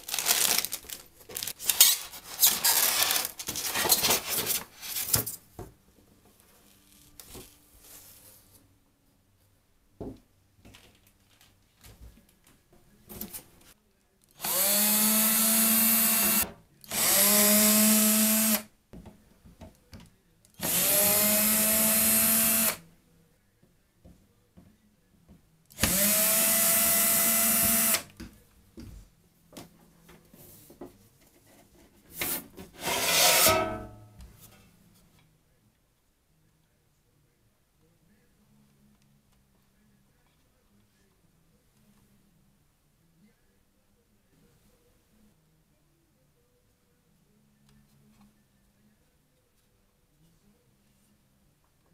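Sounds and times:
cordless screwdriver whirring: 20.6s - 22.8s, 25.8s - 28.0s
short scrape: 32.2s - 33.8s.

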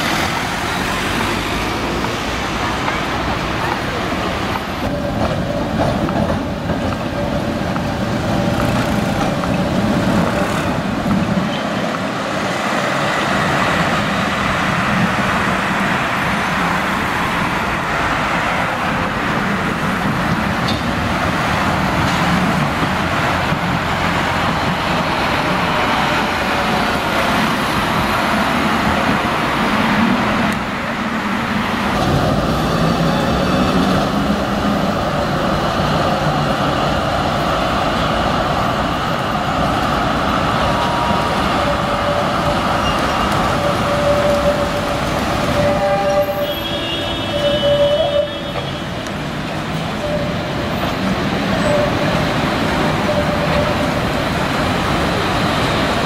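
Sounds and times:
cars passing: 0.0s - 56.0s
trams passing: 0.0s - 56.0s.

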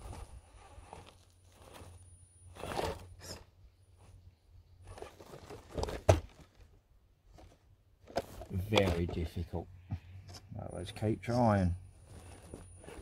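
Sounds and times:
tyres crunching against rock: 0.0s - 3.4s, 10.3s - 13.0s.

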